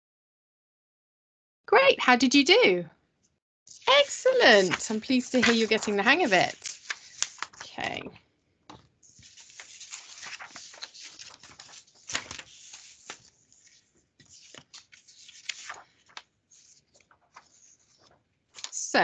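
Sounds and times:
paper sheets rustling and sliding: 0:03.7 - 0:08.0, 0:08.8 - 0:19.0
page turning: 0:03.7 - 0:08.1, 0:08.7 - 0:18.8
paper crinkles: 0:03.7 - 0:08.1, 0:08.7 - 0:18.9.

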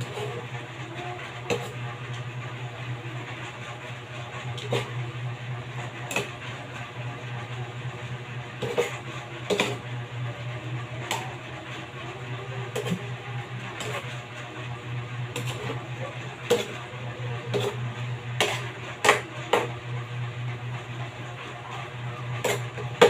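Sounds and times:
steady low hum: 0:00.0 - 0:23.0
metal spatula scraping a wok: 0:08.6 - 0:09.8, 0:13.8 - 0:14.4, 0:15.3 - 0:19.7, 0:22.4 - 0:22.8.

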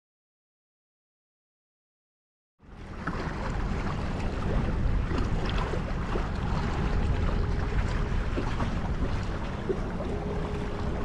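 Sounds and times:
sea water washing and splashing: 0:02.7 - 0:11.0
wind buffeting microphone: 0:02.7 - 0:11.0.

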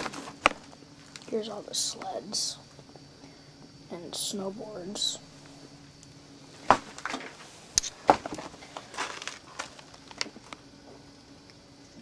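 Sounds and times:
handling knocks and crunches: 0:00.0 - 0:01.3, 0:06.6 - 0:10.6.

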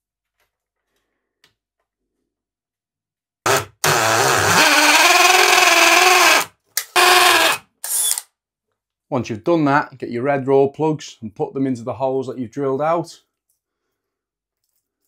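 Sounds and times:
cordless drill boring: 0:03.5 - 0:08.3.

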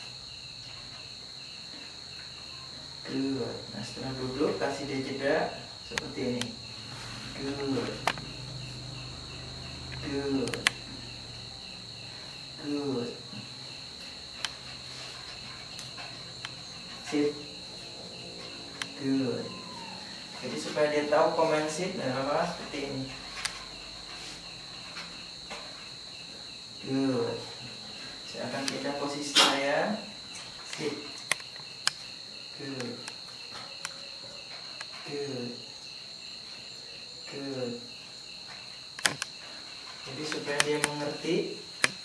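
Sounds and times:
insect chirring: 0:00.0 - 0:42.0
light clicks: 0:09.9 - 0:10.8
sharp clicks: 0:09.9 - 0:10.8, 0:30.7 - 0:32.1, 0:39.0 - 0:39.4, 0:40.3 - 0:41.0, 0:41.8 - 0:42.0.

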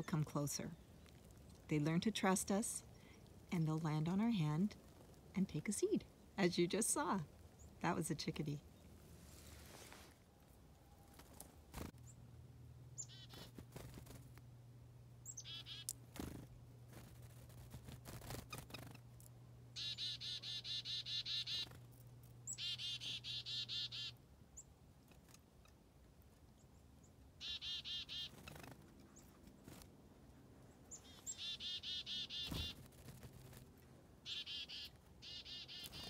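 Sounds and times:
low steady hum: 0:00.0 - 0:27.4
chickadee calls: 0:13.0 - 0:13.5, 0:15.2 - 0:16.4, 0:19.8 - 0:21.8, 0:22.5 - 0:24.7, 0:27.4 - 0:28.8, 0:30.9 - 0:32.8, 0:34.2 - 0:36.0.

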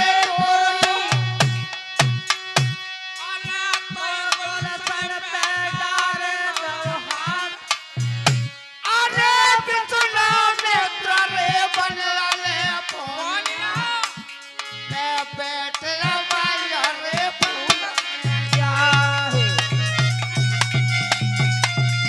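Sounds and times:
dholak drum rhythm: 0:00.0 - 0:22.0
harmonium: 0:00.0 - 0:22.0
wavering melody line: 0:17.4 - 0:22.0.

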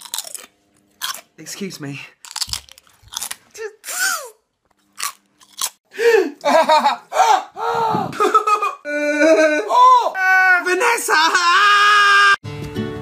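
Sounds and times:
crunchy bites: 0:00.0 - 0:01.3, 0:02.2 - 0:03.5, 0:04.7 - 0:05.8.

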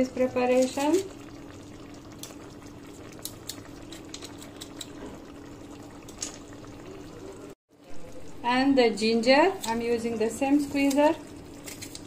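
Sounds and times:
sauce bubbles popping: 0:00.9 - 0:07.5.

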